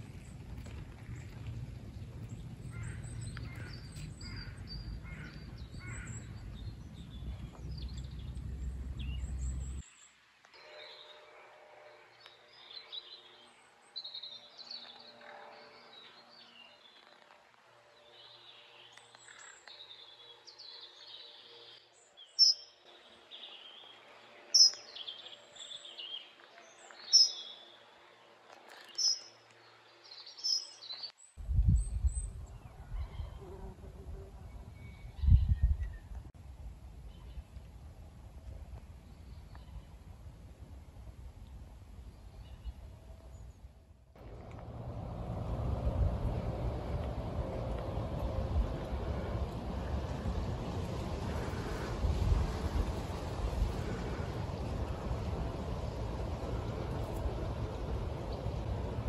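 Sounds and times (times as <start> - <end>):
low rumbling noise: 0.0 - 9.8, 31.4 - 59.0
birds singing and chirping: 2.1 - 9.9, 18.9 - 22.8, 24.5 - 26.2, 26.8 - 27.6, 28.8 - 29.4, 30.1 - 31.1.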